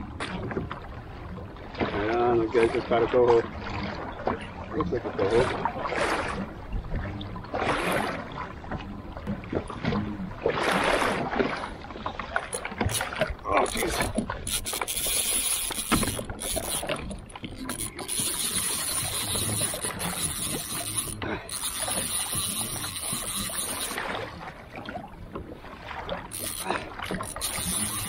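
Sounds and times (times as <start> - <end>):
water splashing and lapping: 0.0 - 28.0
fishing reel clicking and whirring: 12.4 - 24.4, 26.2 - 28.0.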